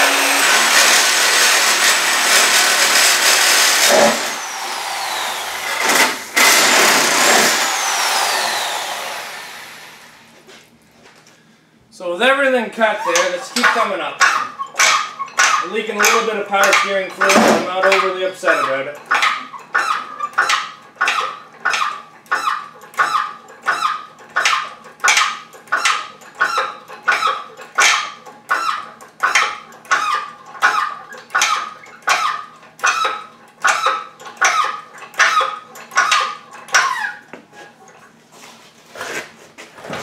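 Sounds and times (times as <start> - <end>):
hydraulic hoist squeaking: 12.8 - 38.2.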